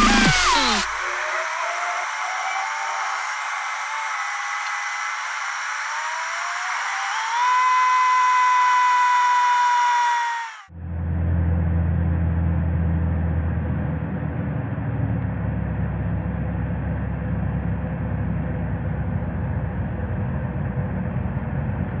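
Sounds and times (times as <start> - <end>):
low hum: 0.0 - 22.0
car engine and road noise: 10.7 - 22.0.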